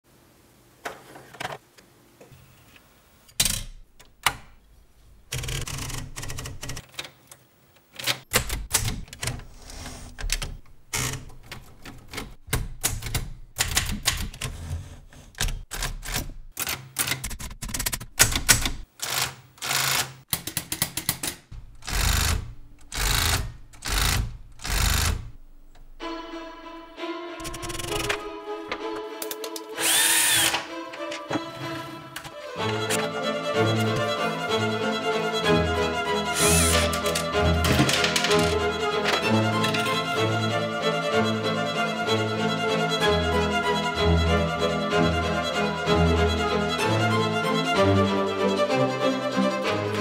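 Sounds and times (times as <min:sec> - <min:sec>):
manual typewriter typing: 0:05.3 - 0:07.1, 0:07.9 - 0:14.8, 0:15.4 - 0:25.3, 0:27.4 - 0:28.3, 0:36.4 - 0:39.9.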